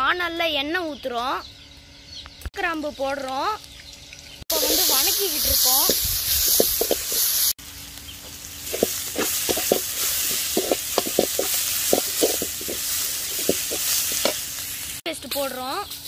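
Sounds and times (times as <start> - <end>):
metal spatula scraping pan: 4.5 - 5.2, 8.7 - 14.5
onions sizzling in oil: 4.5 - 16.0.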